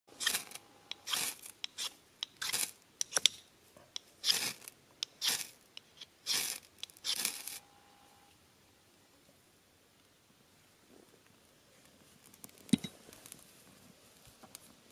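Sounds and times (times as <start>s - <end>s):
knife scraping ferro rod: 0.1s - 3.4s, 4.0s - 7.6s.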